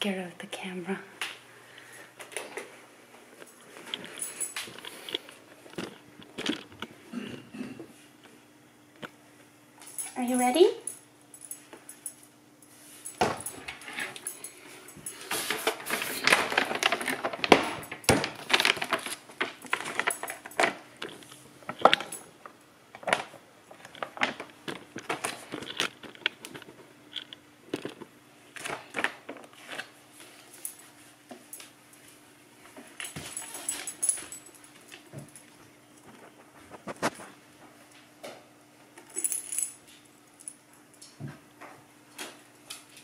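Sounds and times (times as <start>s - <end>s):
plastic bag crinkling: 15.2s - 28.0s.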